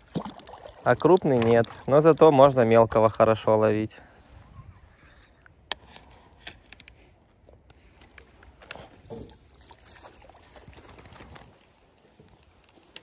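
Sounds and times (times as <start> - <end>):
water lapping and sloshing: 0.0 - 2.7, 7.4 - 12.4.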